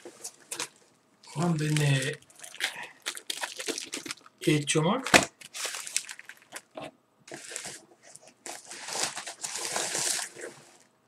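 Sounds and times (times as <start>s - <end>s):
plastic bags rustling: 0.0s - 10.9s.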